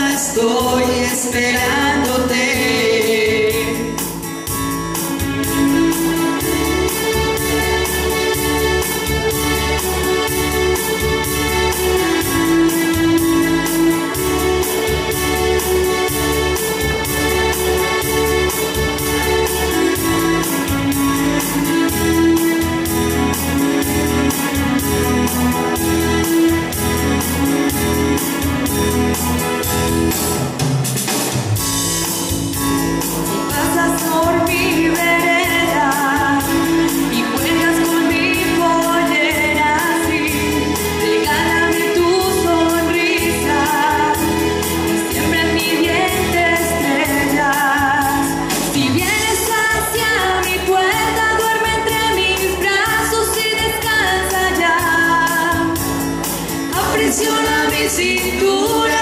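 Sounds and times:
woman singing with vibrato: 0:00.0 - 0:04.3, 0:33.4 - 0:56.0, 0:56.6 - 0:59.0
bass line: 0:00.0 - 0:59.0
electronic keyboard chords: 0:00.0 - 0:59.0.

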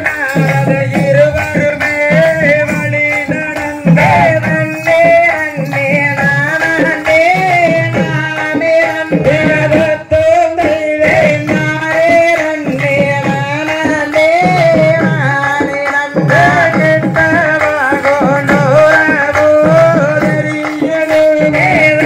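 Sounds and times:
hand drum beat: 0:00.0 - 0:22.0
person singing a melody: 0:00.0 - 0:22.0.

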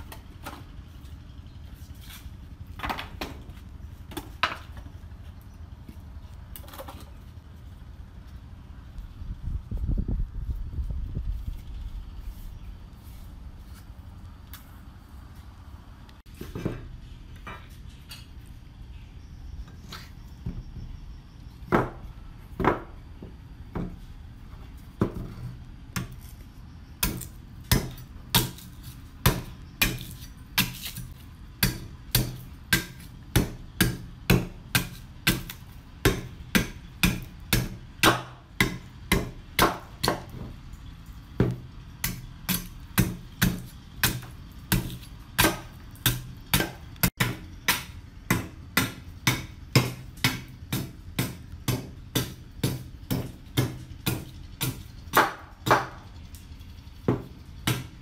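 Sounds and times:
knife chopping wood: 0:27.0 - 0:40.5, 0:41.4 - 0:56.0, 0:57.1 - 0:57.9.

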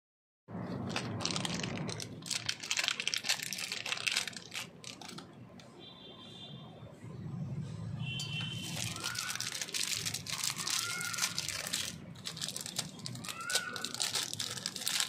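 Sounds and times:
plastic wrapper crinkling: 0:00.6 - 0:05.6, 0:08.4 - 0:15.0.

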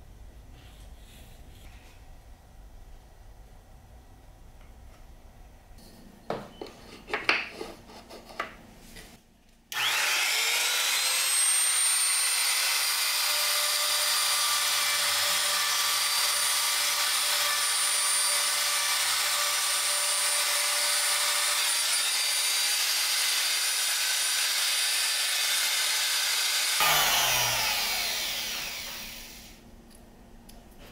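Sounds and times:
trim router whining: 0:09.7 - 0:29.6.

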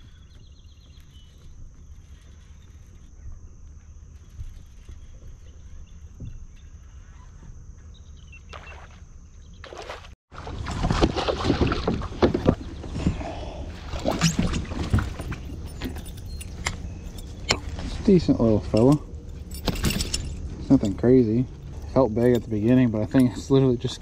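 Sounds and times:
water and wind noise: 0:08.4 - 0:24.0
fish splashing and thrashing: 0:09.6 - 0:16.7
knocks and rattles against kayak: 0:10.4 - 0:24.0.

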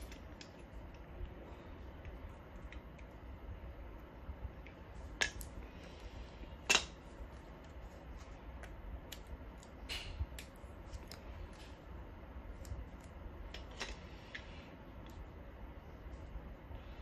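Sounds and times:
small parts clicking and tapping: 0:00.0 - 0:01.1, 0:06.6 - 0:11.8.

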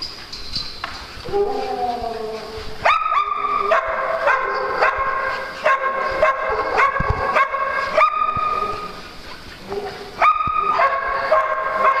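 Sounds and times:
dog yipping: 0:01.3 - 0:05.1, 0:09.8 - 0:12.0.

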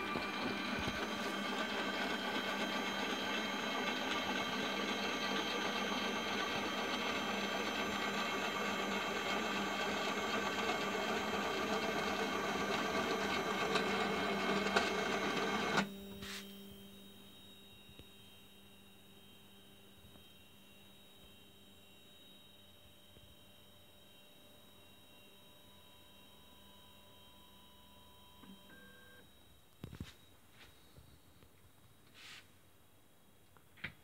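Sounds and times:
stepper motors whining: 0:00.0 - 0:15.9.

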